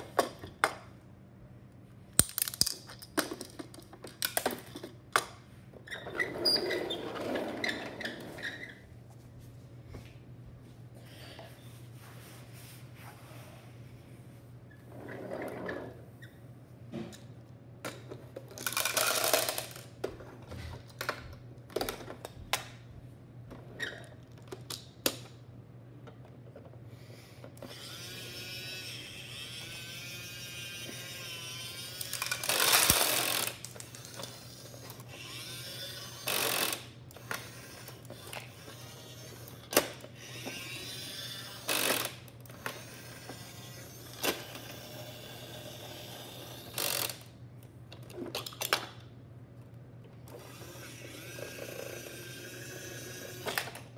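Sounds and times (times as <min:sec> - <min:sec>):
plastic toy clicks and rattles: 0:02.2 - 0:05.3, 0:17.9 - 0:20.0, 0:31.7 - 0:47.3
ratchet-like toy mechanism clicking: 0:18.6 - 0:19.9, 0:29.3 - 0:47.3.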